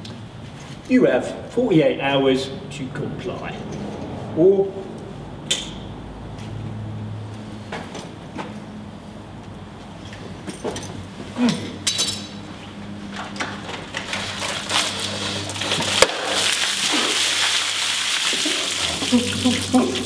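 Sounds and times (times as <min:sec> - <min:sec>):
ice rattling in plastic tub: 0:14.0 - 0:20.0
water pouring and splashing: 0:14.1 - 0:20.0.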